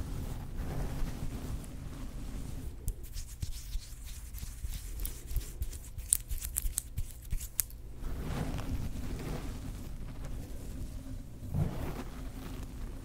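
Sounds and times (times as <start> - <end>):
fingertips scratching hair: 0.6 - 10.4.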